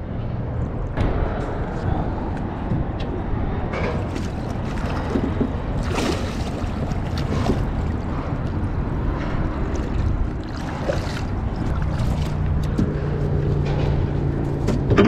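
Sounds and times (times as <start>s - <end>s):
wind buffeting microphone: 0.0s - 15.0s
fish splashing at surface: 4.0s - 8.0s.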